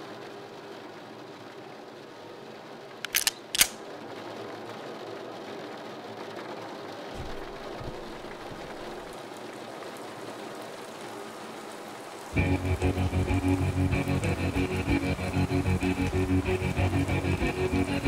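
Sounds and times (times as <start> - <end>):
background hiss: 0.0 - 18.0
sharp clicks: 3.1 - 3.8
faint low rumble: 7.2 - 9.2.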